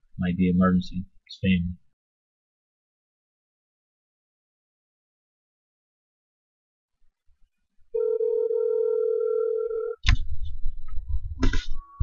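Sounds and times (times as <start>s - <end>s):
telephone ringback tone: 8.0s - 10.0s.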